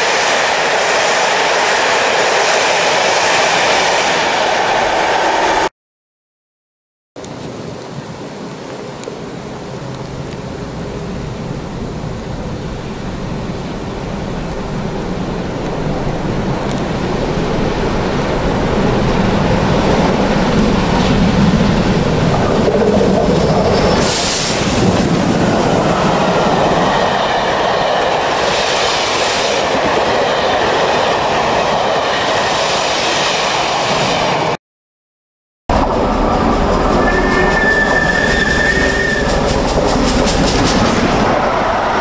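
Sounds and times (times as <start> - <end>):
steam locomotives passing: 0.0 - 5.7, 7.9 - 34.6, 35.7 - 42.0
steam hiss: 24.0 - 25.0
coach wheels clickety-clack: 35.8 - 41.9.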